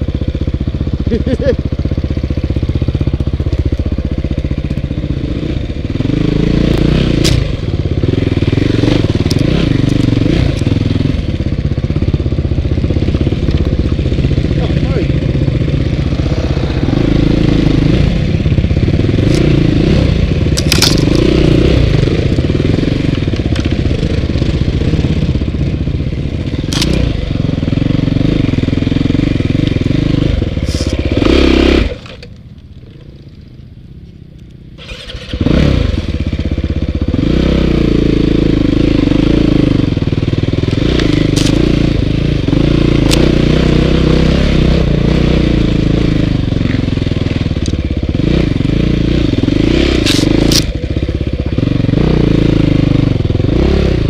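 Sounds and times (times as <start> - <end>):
dirt bike engine revving: 0.9 - 32.3, 34.8 - 54.0
sharp clicks and knocks: 20.5 - 21.4, 26.7 - 27.0.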